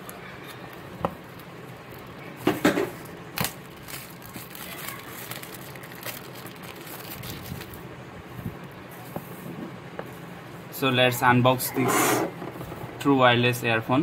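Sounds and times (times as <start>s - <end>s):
plastic crinkling: 0.4s - 7.8s
plastic shrink wrap tearing: 3.3s - 7.8s.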